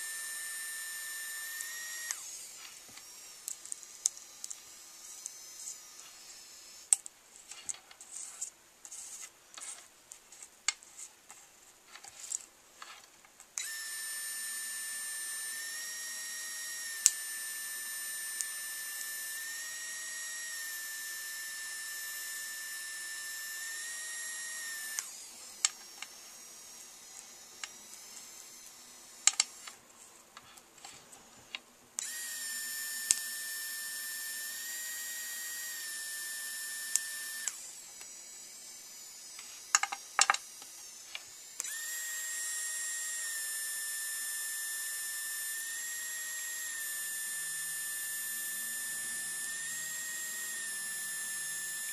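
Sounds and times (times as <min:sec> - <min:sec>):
pen motor whining: 0:00.0 - 0:11.1, 0:11.9 - 0:29.8, 0:30.4 - 0:51.9
sharp clicks: 0:27.2 - 0:29.8.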